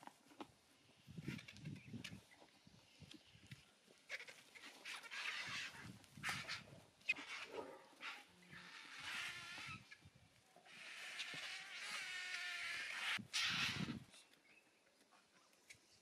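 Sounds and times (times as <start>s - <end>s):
vultures hissing and screeching: 4.2s - 10.0s, 10.7s - 14.0s.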